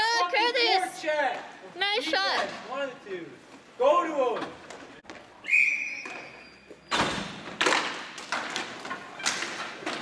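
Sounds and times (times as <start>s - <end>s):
puck striking floor and boards: 6.0s - 10.0s
hockey sticks hitting puck: 7.0s - 10.0s.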